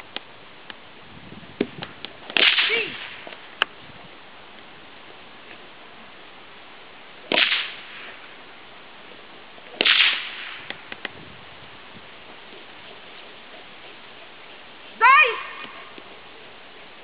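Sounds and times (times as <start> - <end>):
sharp cracks: 1.6 - 3.7, 7.2 - 8.3, 9.7 - 11.2.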